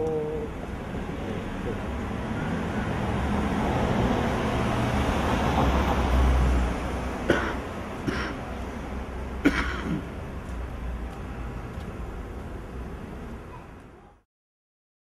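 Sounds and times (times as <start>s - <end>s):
car driving past: 0.0s - 7.9s.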